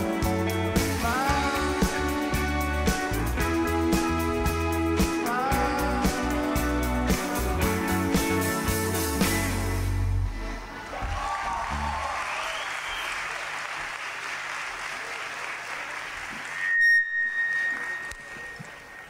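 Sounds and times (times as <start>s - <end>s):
crowd applauding and cheering: 10.4s - 19.0s
high steady whistle tone: 16.4s - 19.0s.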